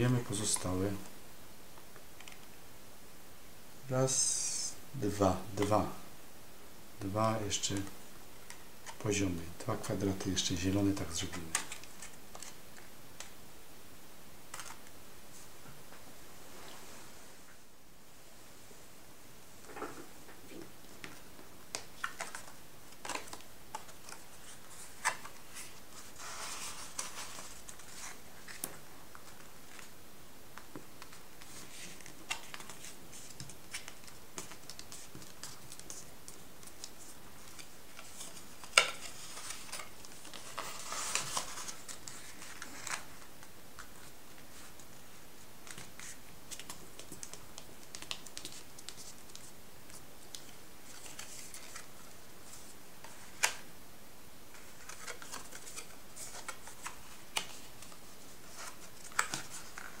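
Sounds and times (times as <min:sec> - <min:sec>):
paper rustling: 0:21.0 - 0:29.9, 0:31.0 - 0:53.6, 0:54.5 - 1:00.0.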